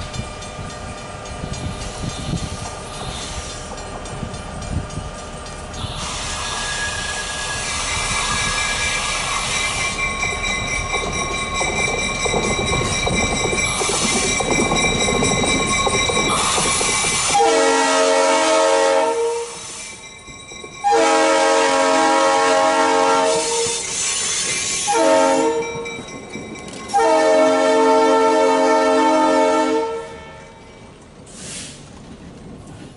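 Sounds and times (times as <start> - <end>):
diesel locomotives passing: 0.0 - 32.9
train air horn blasts: 5.8 - 7.4, 17.2 - 19.8, 20.8 - 23.9, 24.9 - 25.8, 26.9 - 30.6.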